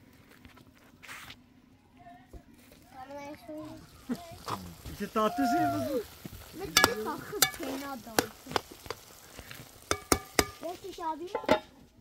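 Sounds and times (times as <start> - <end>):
food frying and stirring: 3.5 - 12.0
utensil clicking against pot: 9.9 - 10.6.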